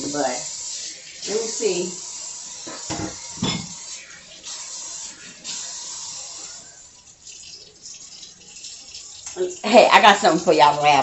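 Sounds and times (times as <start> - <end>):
tap water splashing in sink: 0.0 - 6.4.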